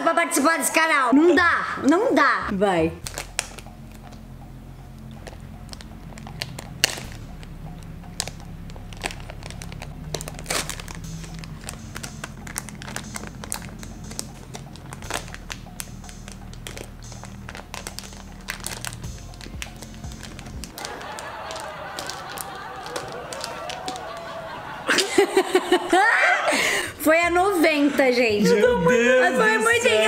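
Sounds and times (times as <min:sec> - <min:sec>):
low steady hum: 0:02.5 - 0:21.4
plastic bag crinkling: 0:03.0 - 0:04.2, 0:05.0 - 0:24.6.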